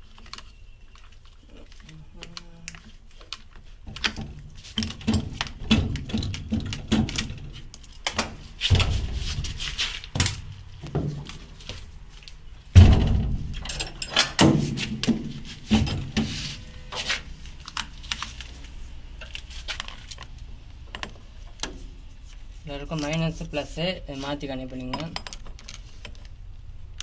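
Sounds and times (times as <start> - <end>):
spanner clinking on metal: 13.5 - 14.4, 24.8 - 26.2.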